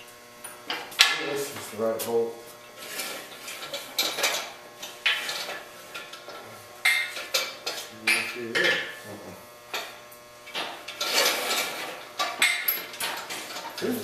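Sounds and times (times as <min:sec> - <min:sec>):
metallic clanks and clinks: 0:10.6 - 0:13.9.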